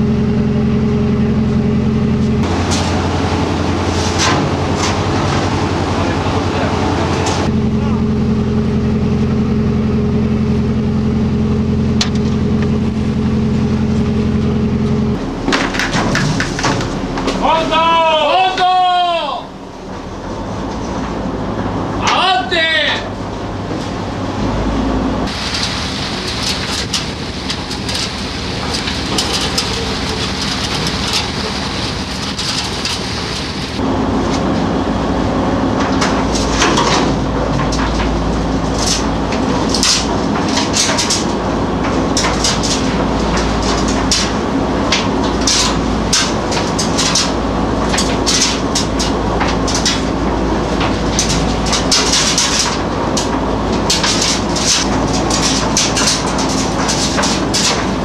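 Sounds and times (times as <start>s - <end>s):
boat engine humming: 0.0s - 4.1s, 5.4s - 21.9s.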